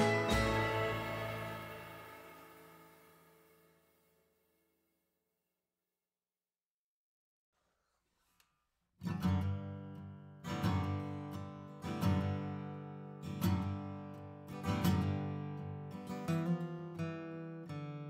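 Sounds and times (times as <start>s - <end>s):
acoustic guitar strummed chords: 0.0s - 4.0s, 9.1s - 18.0s.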